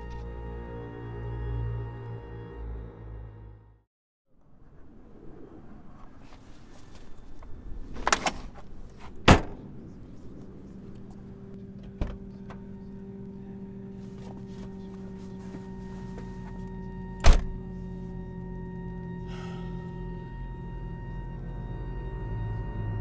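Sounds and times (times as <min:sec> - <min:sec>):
car doors shutting: 0:11.8 - 0:12.7, 0:14.2 - 0:17.8.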